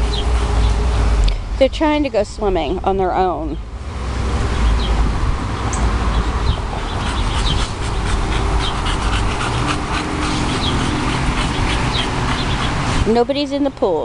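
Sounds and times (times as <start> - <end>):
dogs panting: 6.5 - 13.1.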